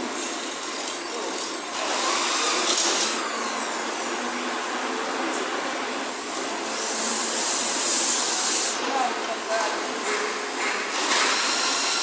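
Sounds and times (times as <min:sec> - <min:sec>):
hissing industrial hall noise: 0:03.3 - 0:12.0.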